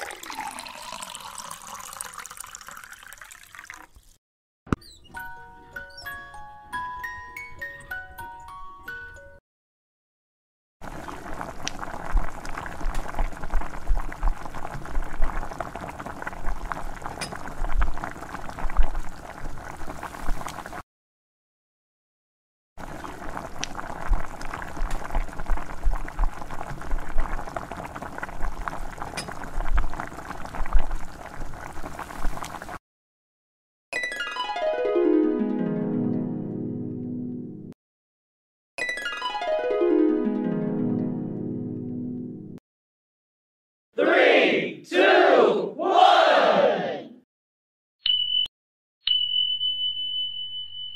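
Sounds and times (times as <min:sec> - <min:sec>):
gravy bubbling in a pan: 0:10.8 - 0:20.8, 0:22.8 - 0:32.8.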